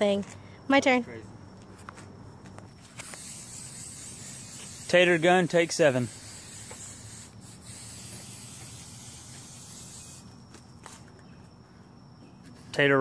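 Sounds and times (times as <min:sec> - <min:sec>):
aerosol spray hissing: 0:02.8 - 0:10.4.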